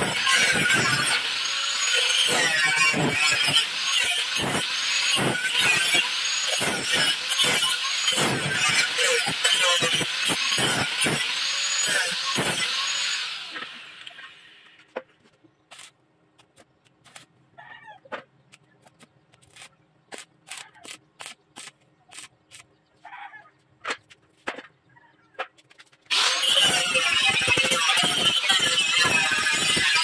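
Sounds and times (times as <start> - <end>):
welding crackles: 0.0 - 12.7, 18.8 - 22.7, 26.2 - 30.0
angle grinder grinding steel: 0.0 - 14.8, 26.1 - 30.0.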